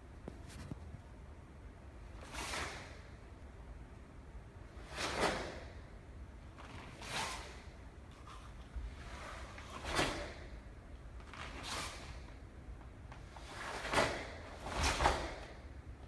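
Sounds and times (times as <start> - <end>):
low room hum: 0.0 - 16.0
uniform swishing sharply: 2.0 - 3.2, 4.7 - 5.8, 6.7 - 10.6.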